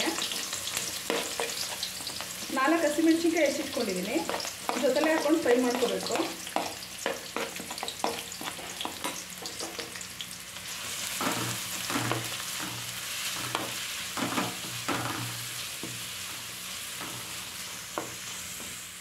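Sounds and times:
spatula scraping pan: 0.0 - 9.8, 10.8 - 16.0
onions sizzling in oil: 0.0 - 19.0.

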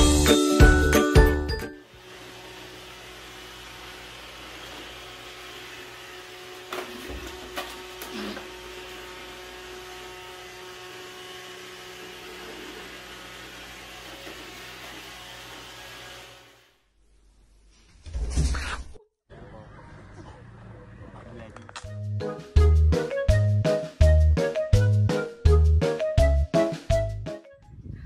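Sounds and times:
robot vacuum whirring: 2.0 - 16.6.

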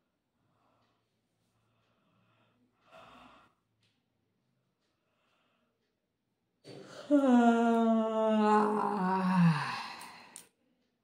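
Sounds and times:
woman yawning: 7.0 - 10.4.

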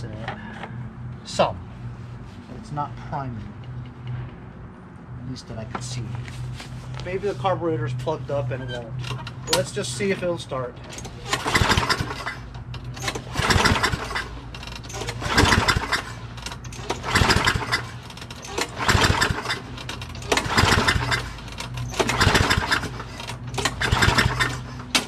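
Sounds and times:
mower recoil starter pulls: 10.9 - 25.0.

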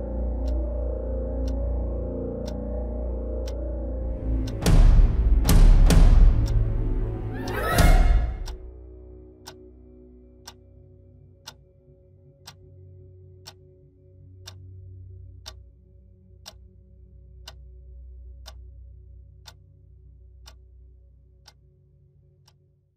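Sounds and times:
faint low drone: 0.0 - 22.9
wall clock ticking: 4.2 - 8.6, 14.4 - 14.6, 17.4 - 17.6.

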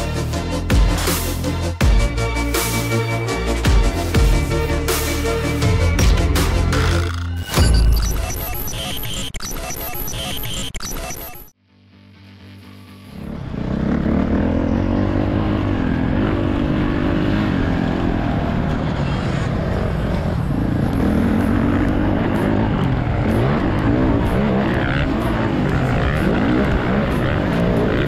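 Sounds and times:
motocross bike engine revving: 13.1 - 28.0.

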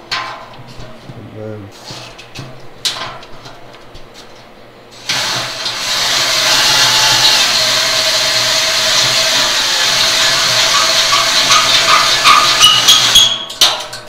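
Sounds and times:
drill whine cutting metal: 5.0 - 13.5.

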